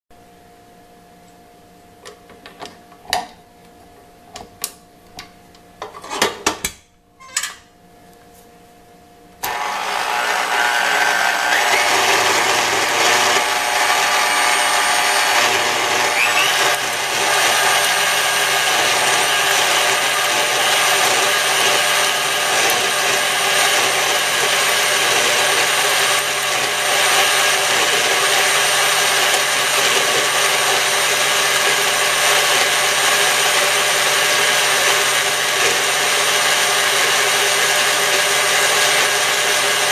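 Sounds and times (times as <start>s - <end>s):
stand mixer motor running: 9.4s - 39.9s
whisk whipping in metal bowl: 9.4s - 39.9s.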